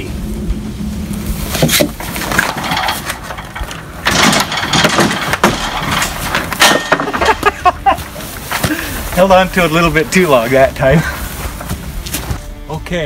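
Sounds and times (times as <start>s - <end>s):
wooden frame knocking and clattering: 1.6s - 9.3s.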